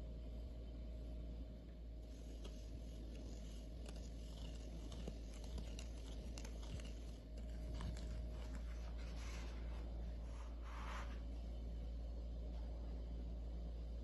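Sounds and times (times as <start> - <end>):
steady low hum: 0.0 - 14.0
soft rustles: 2.0 - 11.6.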